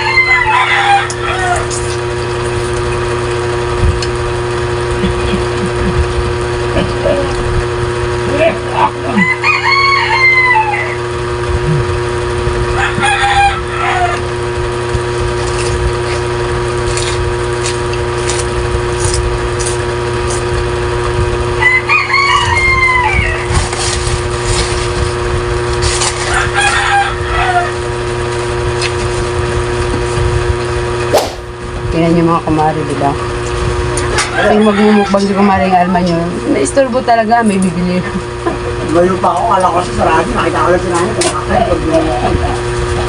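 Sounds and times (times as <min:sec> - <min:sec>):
rooster crowing: 0:00.0 - 0:01.8, 0:09.1 - 0:11.2, 0:12.7 - 0:14.5, 0:21.6 - 0:23.5, 0:26.2 - 0:27.9, 0:34.2 - 0:35.9
steady background hum: 0:00.0 - 0:43.0.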